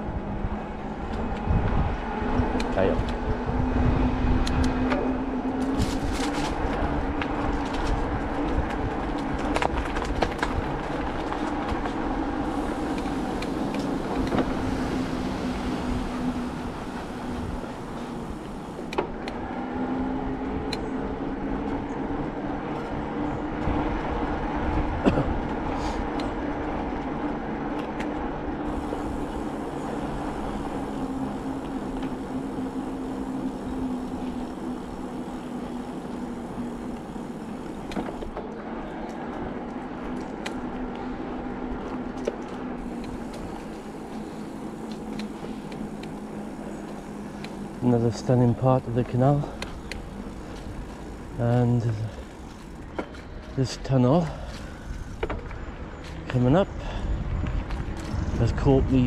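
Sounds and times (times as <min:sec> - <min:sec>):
bicycle tyre and drivetrain noise: 0:00.0 - 0:59.0
steady hum: 0:11.5 - 0:21.1, 0:27.4 - 0:39.2, 0:39.9 - 0:55.2.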